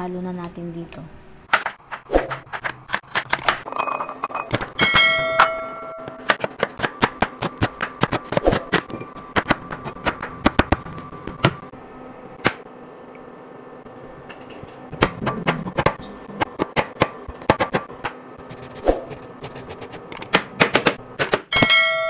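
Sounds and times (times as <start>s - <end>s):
knife chopping on cutting mat: 6.0s - 11.6s.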